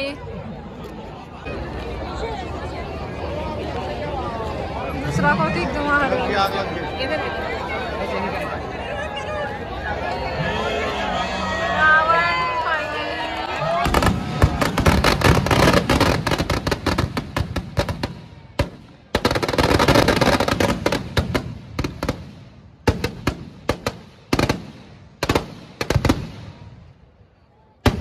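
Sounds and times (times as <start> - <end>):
firecrackers banging: 13.7 - 26.8.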